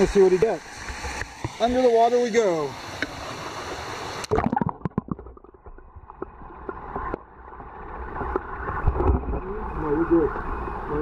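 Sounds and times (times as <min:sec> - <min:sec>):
water rushing over rocks: 0:00.0 - 0:11.0
underwater bubbling: 0:02.9 - 0:11.0
muffled underwater current rumble: 0:04.2 - 0:11.0.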